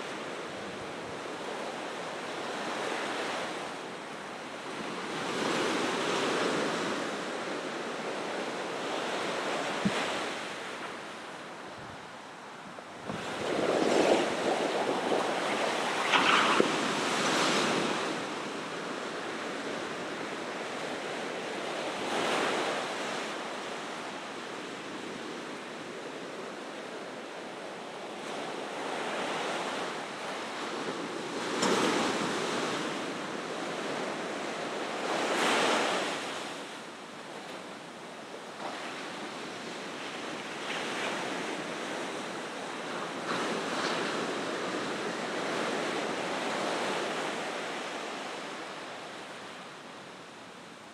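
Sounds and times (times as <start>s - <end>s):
ocean waves crashing: 13.1s - 18.7s.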